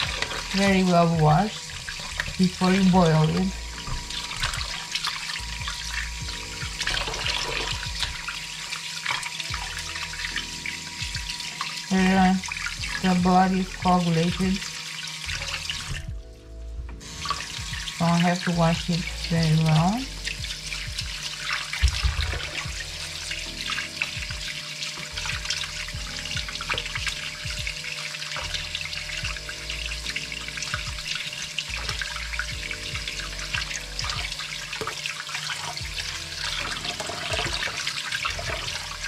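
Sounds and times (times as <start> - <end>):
tap running into bowl of water: 23.7 - 38.8.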